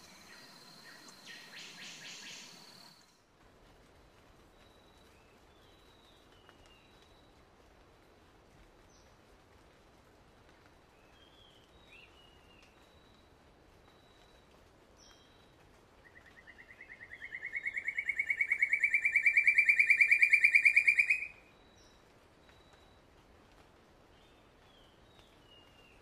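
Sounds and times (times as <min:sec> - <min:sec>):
bird pulsed trill: 0:00.0 - 0:03.1, 0:16.7 - 0:21.4
faint bird chirps: 0:00.0 - 0:03.1, 0:15.1 - 0:23.0.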